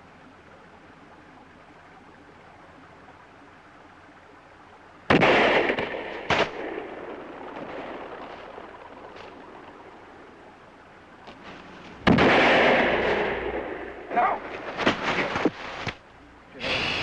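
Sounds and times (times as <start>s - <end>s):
gunshots with echo: 5.1s - 8.2s, 12.0s - 14.3s.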